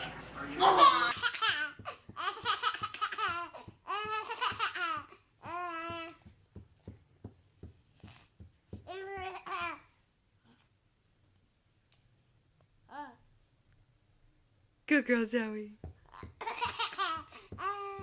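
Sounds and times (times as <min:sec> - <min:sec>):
baby laughing and babbling: 0:00.6 - 0:06.2, 0:08.9 - 0:09.9, 0:16.1 - 0:18.0.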